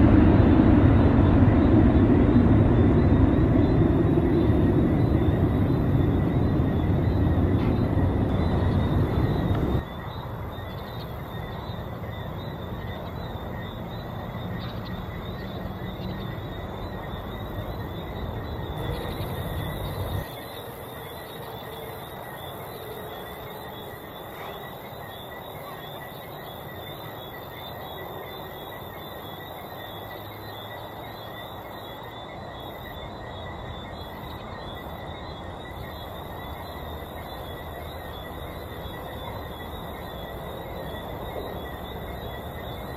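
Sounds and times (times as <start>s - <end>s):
jet plane climbing away: 0.0s - 9.9s
insects chirring: 0.0s - 42.9s.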